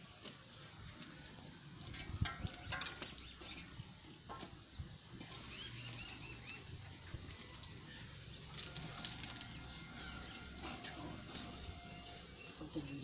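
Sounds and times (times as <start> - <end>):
wood fire crackling: 0.0 - 13.0
bird chirping: 4.7 - 13.0.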